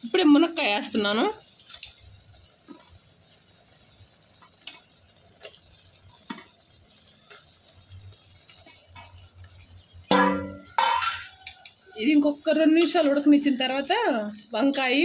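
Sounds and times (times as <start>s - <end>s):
cooking pot hissing: 0.0s - 15.0s
food pieces plopping into pot: 10.1s - 11.7s.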